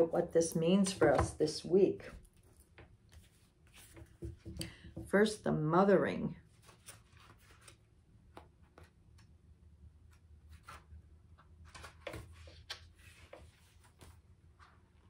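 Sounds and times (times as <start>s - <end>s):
pages turning and rustling: 0.8s - 4.6s, 6.4s - 9.2s, 10.1s - 15.0s.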